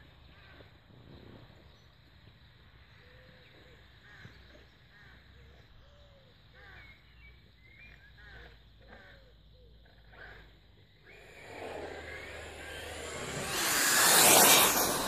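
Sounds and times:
birds chirping: 11.0 - 15.0
low background rumble: 11.1 - 15.0.

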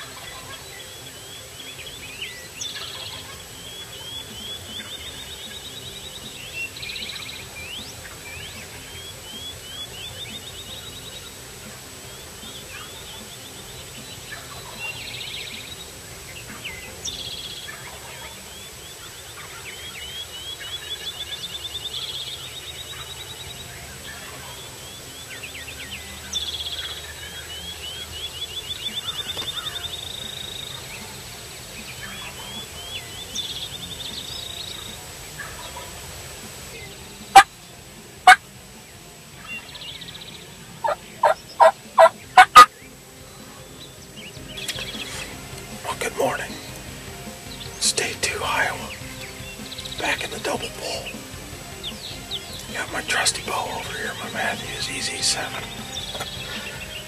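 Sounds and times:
turkeys gobbling: 0.0 - 42.9, 43.8 - 57.0
bird high rising song: 0.0 - 57.0
very loud sharp sounds: 43.5 - 57.0.

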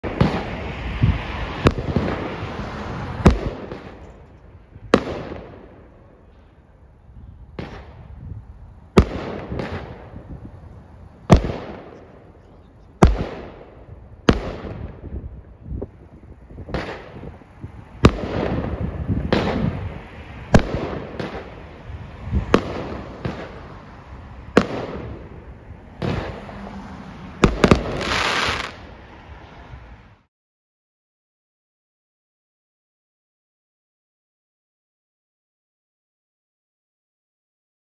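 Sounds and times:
firework cake bangs: 11.3 - 12.2.

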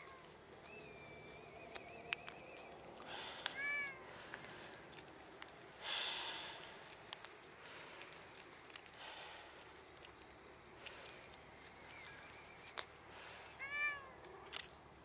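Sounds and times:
cat meowing: 3.5 - 4.1, 13.5 - 14.2.

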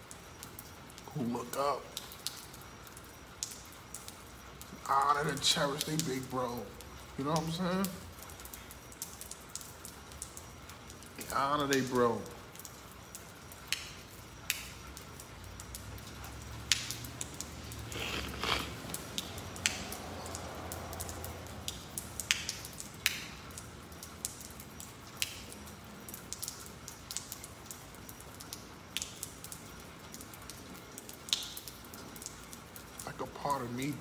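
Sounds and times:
faint hiss: 0.0 - 26.4, 33.0 - 34.0
sharp ticks and taps: 12.6 - 32.9.

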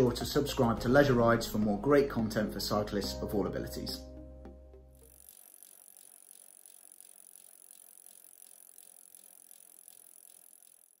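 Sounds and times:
bicycle freewheel ticking: 5.0 - 11.0.

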